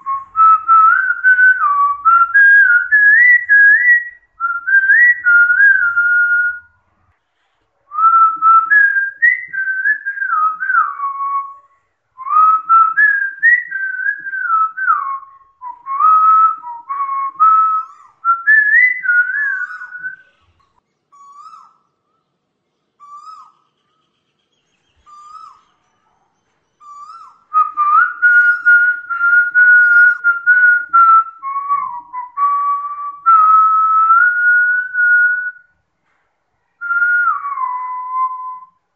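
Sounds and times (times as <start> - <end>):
person whistling a melody: 0.0 - 6.7, 7.9 - 11.6, 12.2 - 20.4, 27.5 - 35.7, 36.8 - 38.8.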